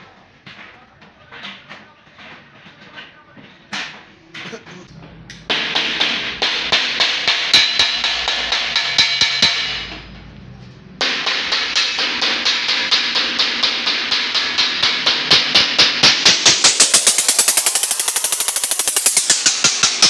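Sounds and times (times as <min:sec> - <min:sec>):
hammer striking sheet metal: 0:03.8 - 0:10.3, 0:10.9 - 0:20.0.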